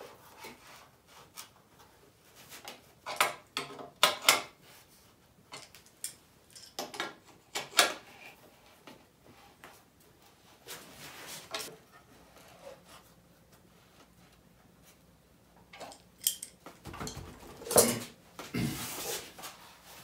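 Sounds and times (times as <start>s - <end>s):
metal tools clinking and knocking: 5.5s - 7.1s, 15.7s - 18.0s.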